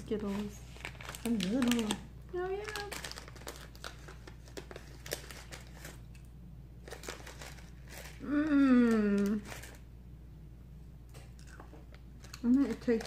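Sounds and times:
plastic wrapper crinkling and tearing: 0.1 - 6.2, 6.8 - 9.8.

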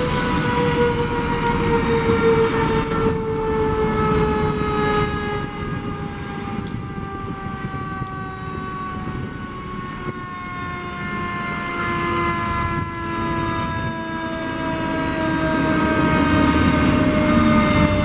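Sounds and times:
fire engine siren winding down: 0.0 - 18.0
traffic and engines rumbling: 0.0 - 18.0.

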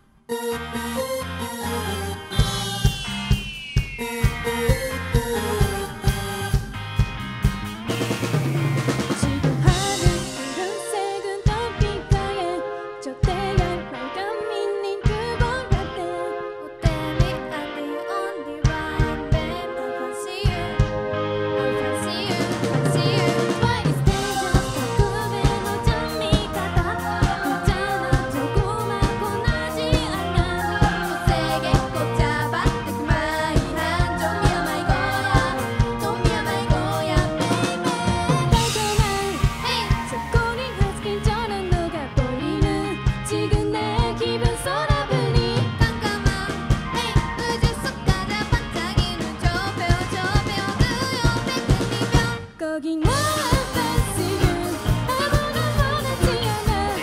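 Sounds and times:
live band playing pop: 0.3 - 57.0
steady drum beat: 2.4 - 10.7, 22.2 - 41.0, 53.1 - 57.0
person singing: 9.2 - 20.9, 21.6 - 57.0.

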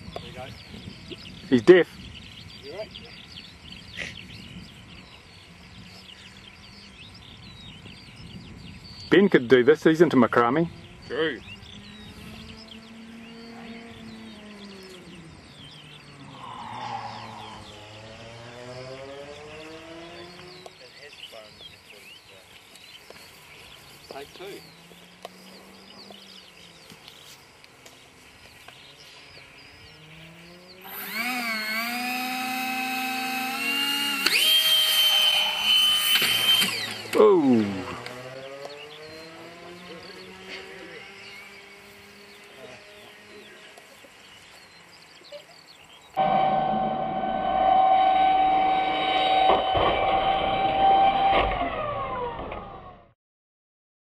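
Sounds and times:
electric fan whine: 0.0 - 20.6, 23.4 - 38.2, 46.2 - 52.9
birds chirping: 0.0 - 49.8.

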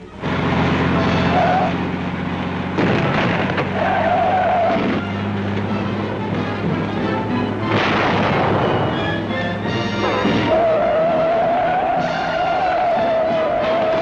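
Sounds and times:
road noise: 0.0 - 14.0
truck engine drone: 0.0 - 14.0
wavering squeals: 0.9 - 1.9, 3.6 - 5.3, 8.7 - 14.0.

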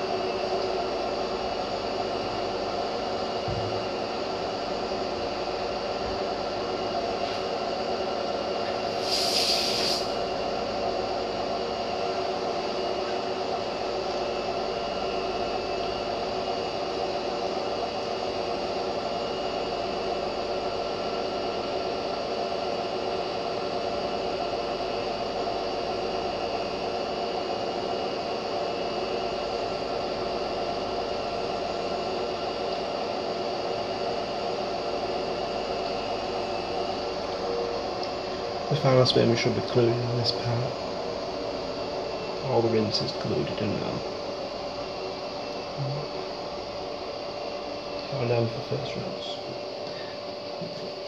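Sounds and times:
washing machine running: 0.0 - 51.0
brief hiss: 8.9 - 10.2.

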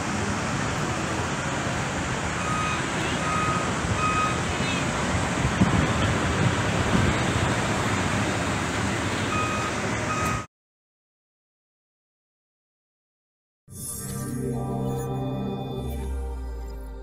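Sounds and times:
outdoor rumble: 0.0 - 10.5
reversing alarm beeping: 2.4 - 4.4, 9.3 - 10.5.

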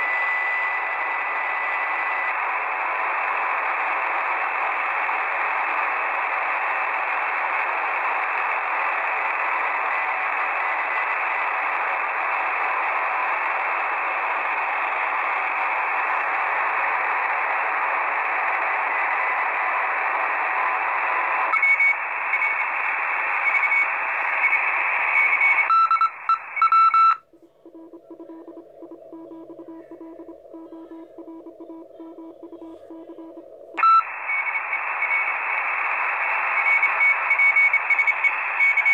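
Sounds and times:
radio static hiss: 0.0 - 38.9
thin radio tone: 0.0 - 38.9
morse code beeps: 25.2 - 34.1.

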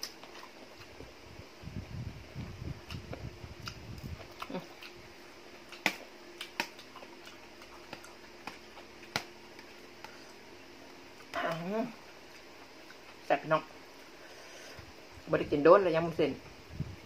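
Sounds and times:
man chewing food: 0.0 - 1.2, 2.3 - 13.3.

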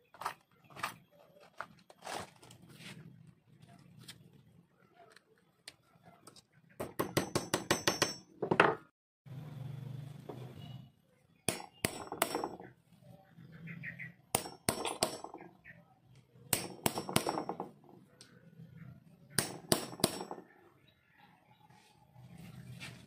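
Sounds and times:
hammer striking metal punch: 6.8 - 8.6, 11.5 - 12.7, 14.4 - 15.4, 16.5 - 17.6, 19.4 - 20.4.

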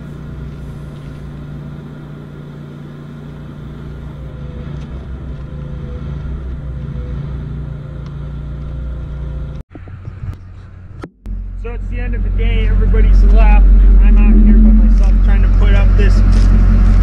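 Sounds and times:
motor idling: 0.0 - 7.0, 11.1 - 17.0
faint wavering tone: 11.3 - 16.8.

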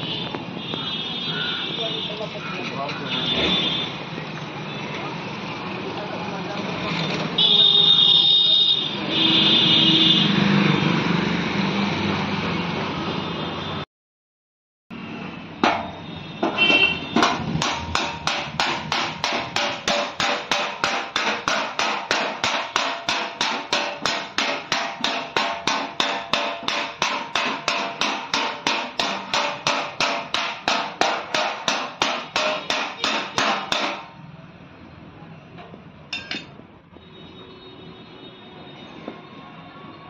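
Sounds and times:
metal tool tapping car fender: 15.6 - 34.1, 36.2 - 36.6.

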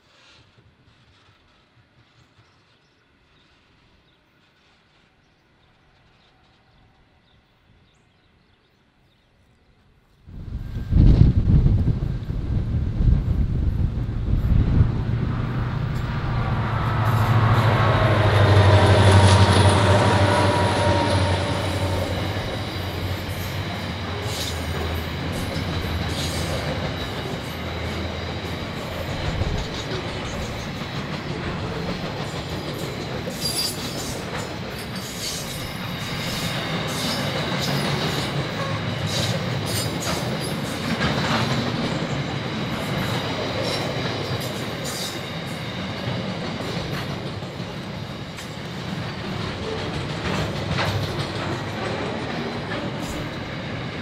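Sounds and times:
diesel locomotive engine drone: 9.6 - 54.0
high wheel squeal: 16.0 - 29.3, 33.3 - 40.7
wheels clicking over rail joints: 46.4 - 53.3.

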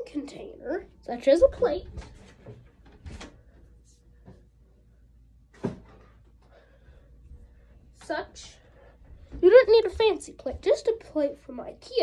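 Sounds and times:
knocks and rustles of handling: 1.5 - 4.5.

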